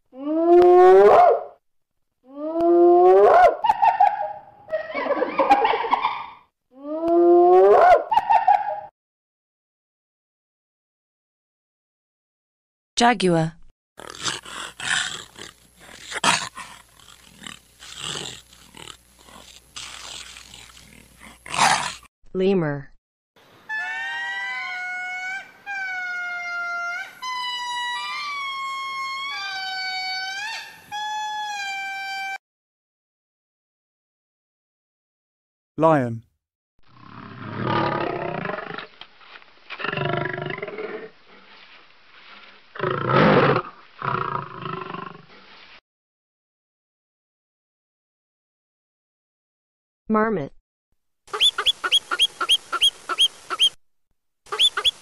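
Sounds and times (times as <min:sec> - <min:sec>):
hyena whooping and giggling: 0:02.4 - 0:08.9, 0:23.7 - 0:32.2
lemur wailing calls: 0:23.7 - 0:32.2, 0:51.3 - 0:53.8, 0:54.5 - 0:55.0.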